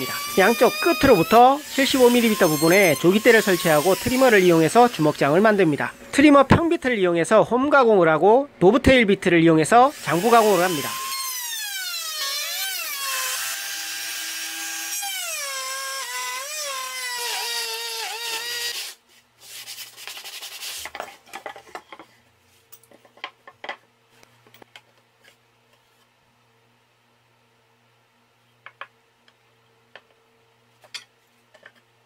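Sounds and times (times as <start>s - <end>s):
trim router motor whine: 0.0s - 5.8s, 9.9s - 18.8s.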